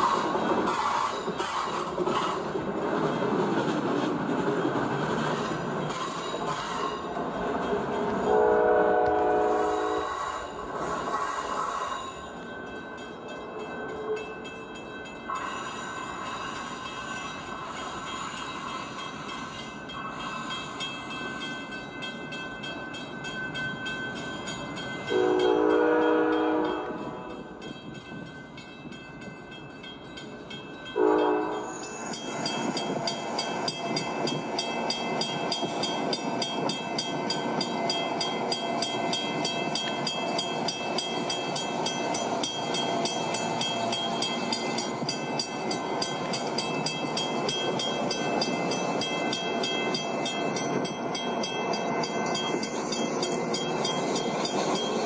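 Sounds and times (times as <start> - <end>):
train horn: 8.3 - 10.2, 25.1 - 27.2, 31.0 - 31.8.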